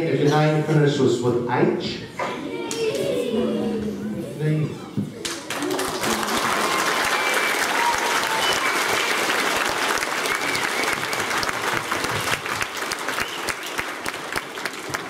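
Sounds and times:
children applauding: 5.2s - 15.0s.

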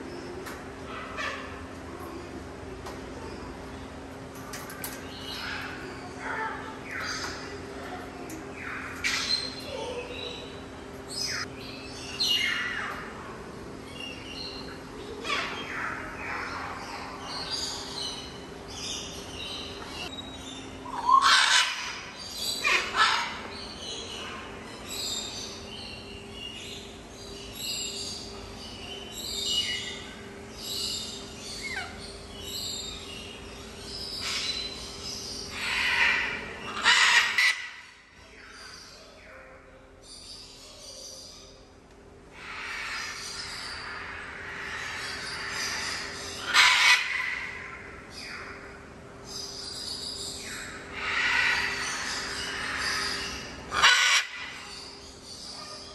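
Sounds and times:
steady low hum: 0.0s - 55.9s
macaws squawking: 20.9s - 23.4s, 35.6s - 38.0s, 43.8s - 47.8s, 50.9s - 54.7s.

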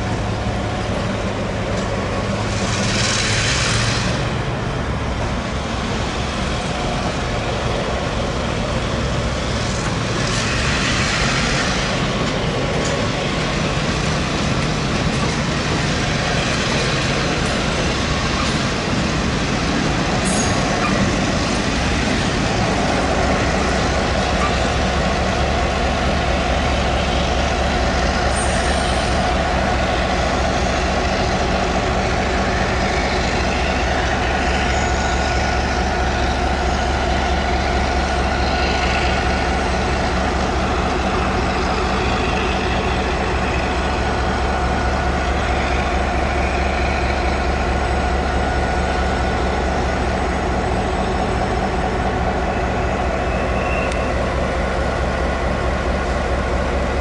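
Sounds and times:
locomotive engine idling: 11.8s - 57.0s.

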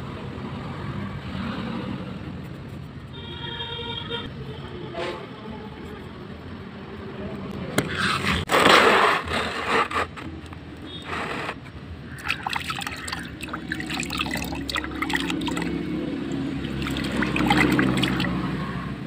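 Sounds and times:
water drips: 12.1s - 18.4s
splashing in a water basin: 12.1s - 18.6s.

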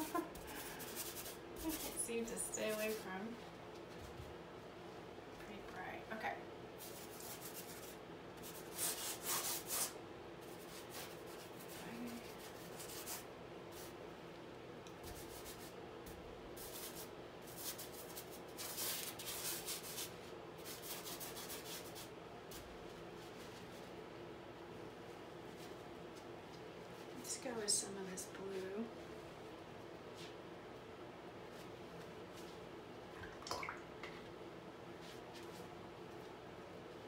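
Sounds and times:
paintbrush scrubbing canvas: 0.0s - 3.1s, 6.8s - 14.0s, 15.0s - 15.8s, 16.6s - 23.9s.

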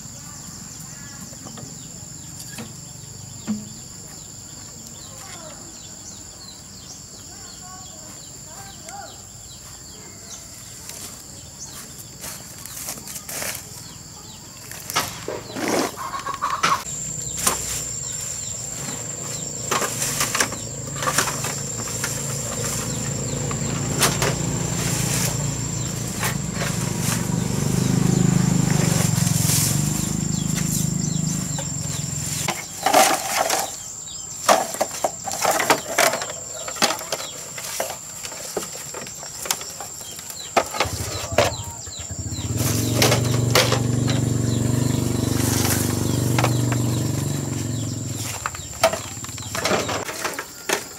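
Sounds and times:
leaves and stems rustling: 10.5s - 50.9s
blade hacking undergrowth: 16.8s - 33.9s, 42.2s - 50.9s.

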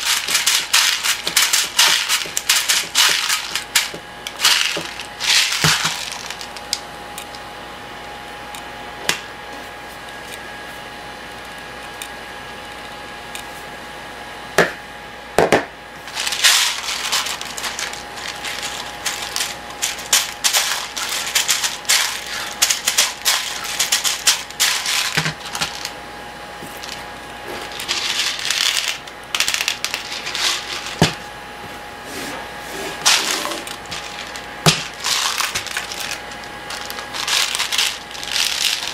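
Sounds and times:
pellets rattling in plastic bottle: 0.0s - 6.8s, 16.0s - 25.9s, 27.6s - 31.2s, 33.0s - 38.9s.

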